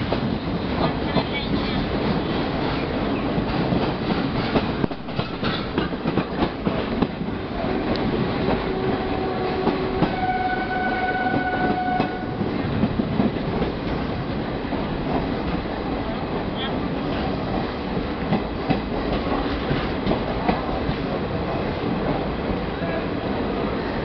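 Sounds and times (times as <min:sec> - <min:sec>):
train wheels rumbling on rails: 0:00.0 - 0:24.0
train horn two-note: 0:07.7 - 0:12.4.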